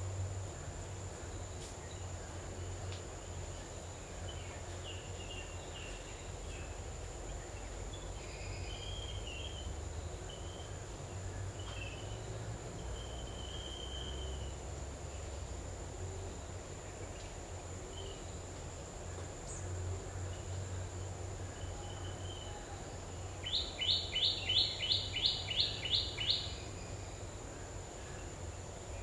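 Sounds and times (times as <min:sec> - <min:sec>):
high insect whine: 0:00.0 - 0:29.0
small birds chirping: 0:23.2 - 0:29.0.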